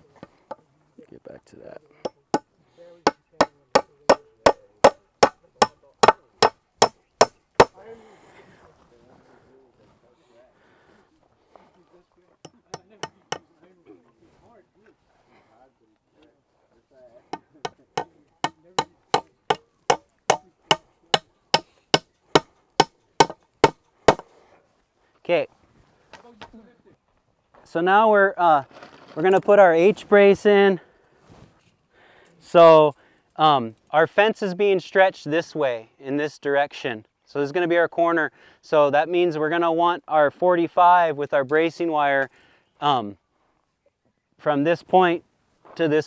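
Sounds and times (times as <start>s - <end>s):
hammer striking wood: 3.1s - 7.8s, 17.3s - 24.3s.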